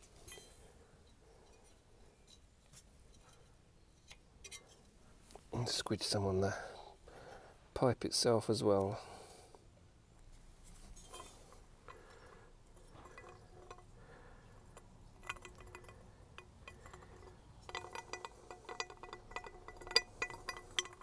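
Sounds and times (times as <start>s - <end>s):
metal exhaust pipe clinking: 11.0s - 21.0s.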